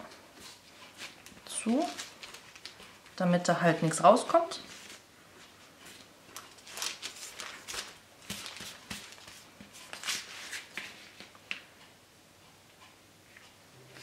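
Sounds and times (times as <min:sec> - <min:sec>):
hands patting dough on paper: 0:04.6 - 0:11.7.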